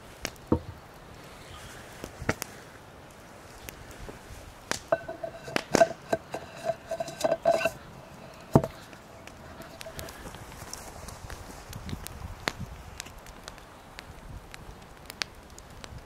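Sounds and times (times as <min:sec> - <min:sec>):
metal mug clinking and ringing: 0:04.9 - 0:08.7.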